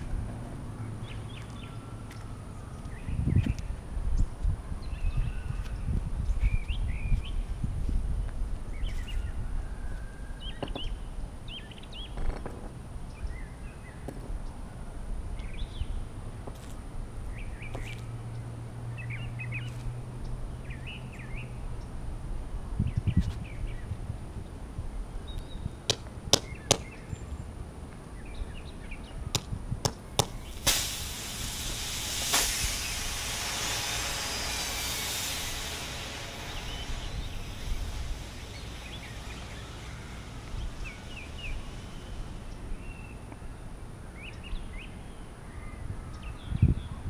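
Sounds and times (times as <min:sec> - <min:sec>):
hammer striking nail: 0:25.9 - 0:27.0, 0:29.4 - 0:30.8
battery venting hiss: 0:30.2 - 0:43.3.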